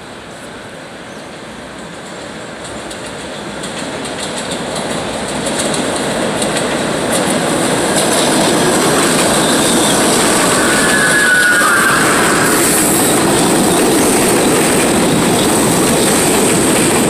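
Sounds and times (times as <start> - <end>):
subway train rumble: 0.0 - 17.0
wheels clicking over rail joints: 2.0 - 11.2.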